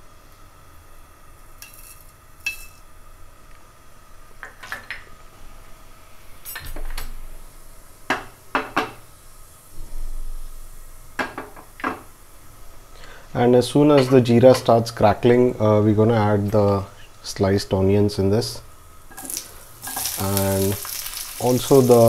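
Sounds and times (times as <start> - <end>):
seeds tipped into frying pan: 19.1 - 22.0.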